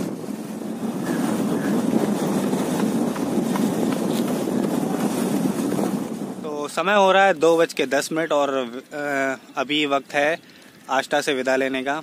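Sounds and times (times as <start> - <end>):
road and wind noise: 0.0 - 12.0
motorcycle engine running: 0.4 - 6.2.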